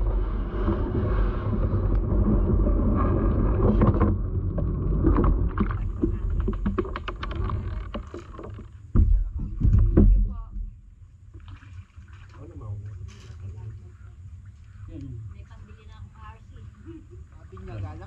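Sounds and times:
bumps through kayak hull: 0.0s - 10.8s
knocks and clatter: 0.6s - 10.5s.

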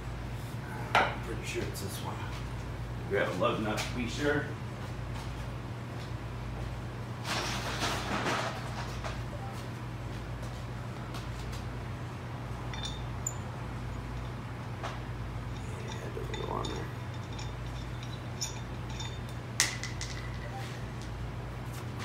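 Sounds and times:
low shop hum: 0.0s - 22.0s
sharp metal clink with ring: 12.7s - 14.4s.

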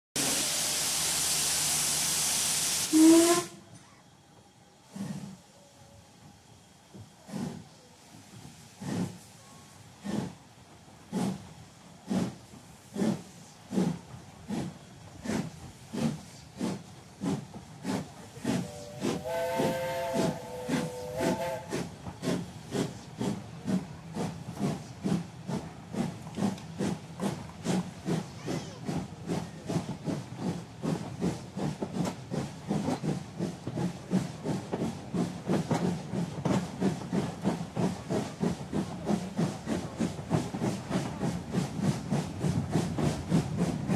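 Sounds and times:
steam whistle: 0.2s - 3.6s, 18.5s - 21.9s
steam locomotive chuffing: 0.2s - 43.9s.

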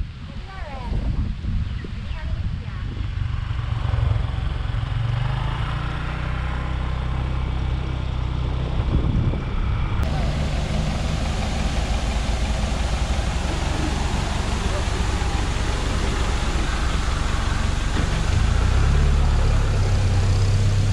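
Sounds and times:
hissy street noise: 0.0s - 8.9s, 9.6s - 20.9s
road and wind noise: 0.0s - 20.9s
vehicle engine idling: 3.2s - 20.9s
motorbike engine running: 10.0s - 20.9s.

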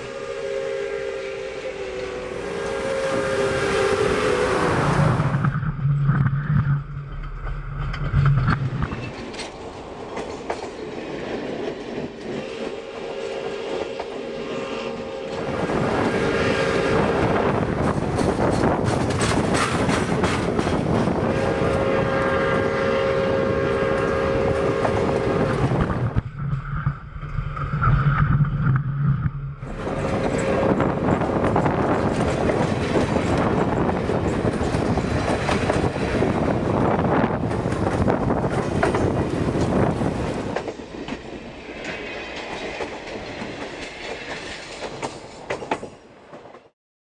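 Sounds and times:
train whistle chord: 0.0s - 5.4s, 12.4s - 17.6s, 21.2s - 25.8s
low drone: 0.0s - 9.1s
train wheels clacking on rails: 8.0s - 14.3s, 15.4s - 22.3s, 29.6s - 46.7s.

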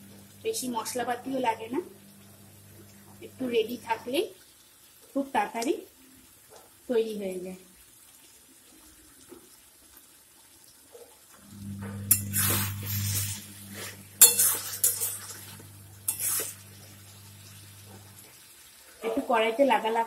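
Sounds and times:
steady low hum: 0.0s - 3.6s, 11.4s - 18.3s
metal spatula scraping a pan: 11.9s - 18.3s.

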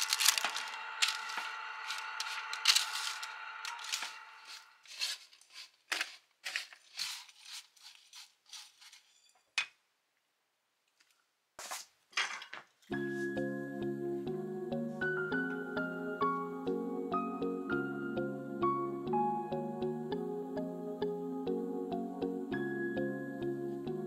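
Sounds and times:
kitchen clinks and scrapes: 0.0s - 9.7s.

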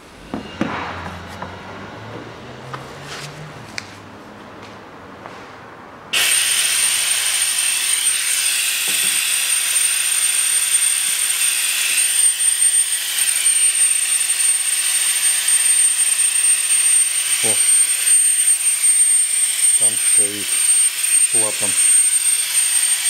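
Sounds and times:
suction pump hissing and whining: 6.2s - 23.0s.

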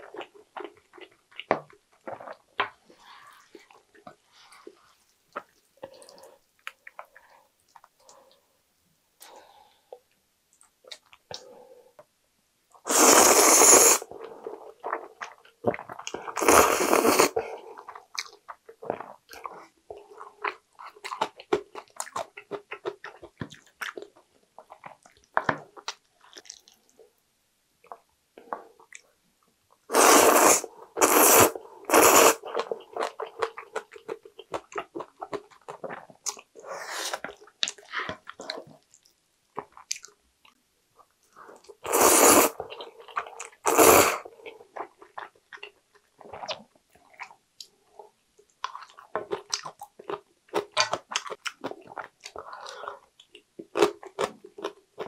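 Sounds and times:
soft chewing: 0.0s - 8.4s, 17.5s - 27.2s, 32.0s - 41.9s, 42.6s - 55.0s
noodles being slurped: 12.9s - 14.1s, 16.2s - 17.4s, 29.9s - 33.2s, 41.6s - 44.2s.

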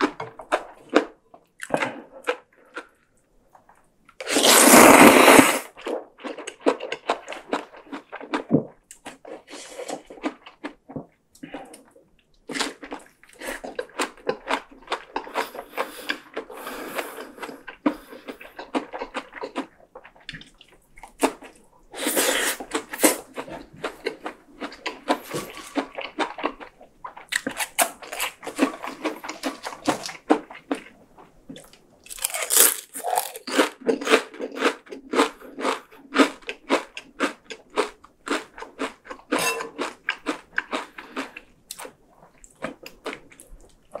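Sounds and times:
noodle slurps: 4.2s - 5.8s, 21.9s - 23.3s
wet chewing and crunching: 5.7s - 21.7s, 22.6s - 44.0s.

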